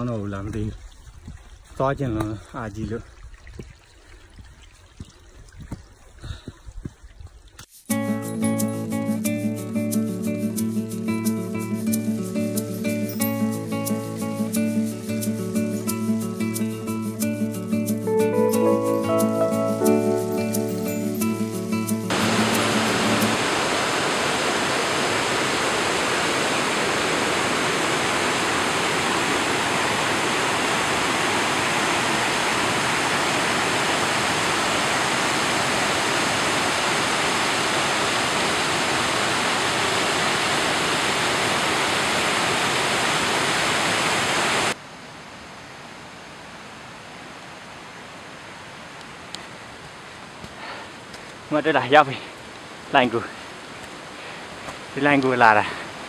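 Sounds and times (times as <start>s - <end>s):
stream rushing over rocks: 22.1s - 45.7s, 46.5s - 56.0s.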